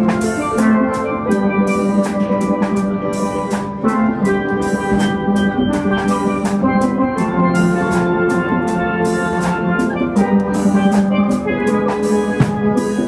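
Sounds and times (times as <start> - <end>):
percussion steady beat: 0.0 - 13.0
steel band playing: 0.0 - 13.0.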